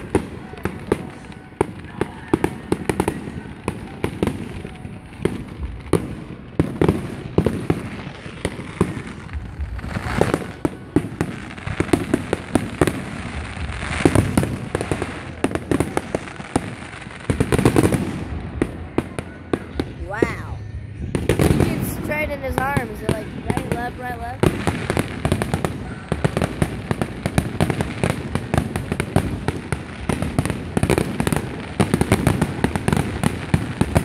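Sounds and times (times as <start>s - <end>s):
fireworks bangs and crackles: 0.0s - 34.0s.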